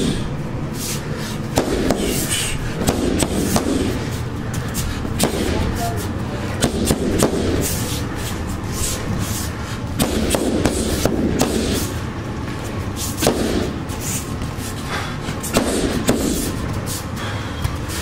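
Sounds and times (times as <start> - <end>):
strikes on punching bag: 1.5 - 2.2, 2.8 - 3.9, 5.2 - 5.6, 6.6 - 7.6, 10.0 - 11.8, 13.2 - 13.8, 15.5 - 16.5.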